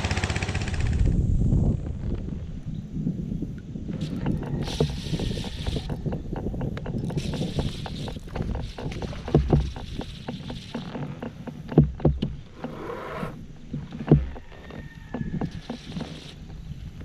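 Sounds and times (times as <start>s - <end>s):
knocks and thumps on kayak hull: 4.1s - 17.0s.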